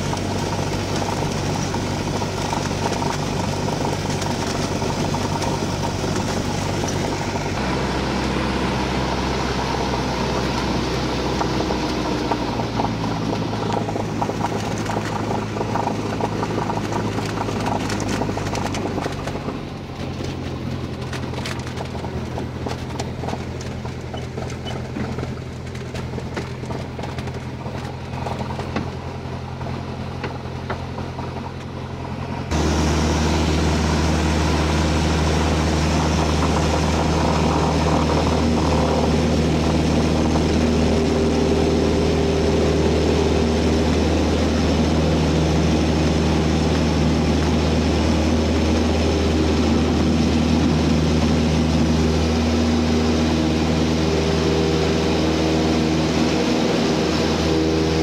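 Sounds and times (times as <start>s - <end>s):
aircraft engine and propeller droning: 0.0s - 58.0s.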